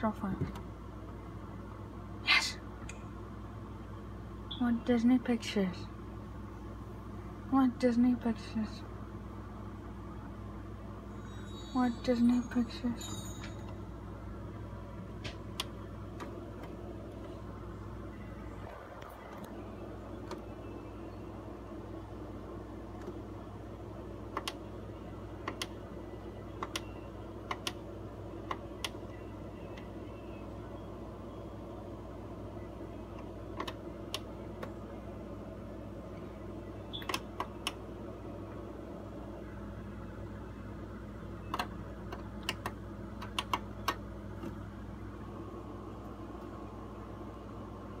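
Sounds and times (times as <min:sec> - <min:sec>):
low hum and hiss: 0:00.0 - 0:48.0
buttons clicking: 0:26.6 - 0:26.9, 0:36.9 - 0:37.8, 0:41.5 - 0:44.6.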